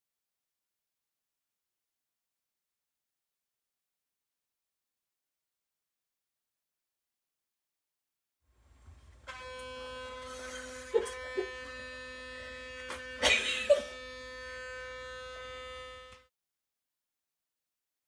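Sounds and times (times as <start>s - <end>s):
electric toothbrush buzzing: 9.2s - 16.3s.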